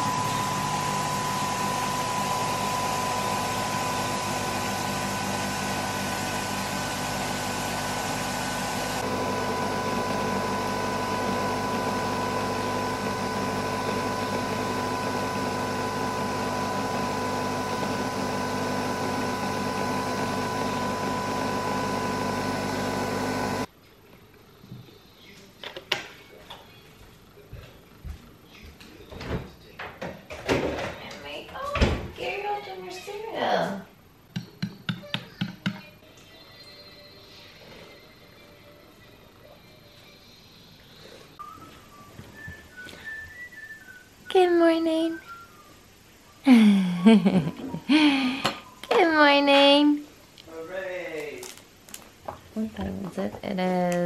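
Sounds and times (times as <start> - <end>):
coffee machine humming and whining: 0.0 - 23.7.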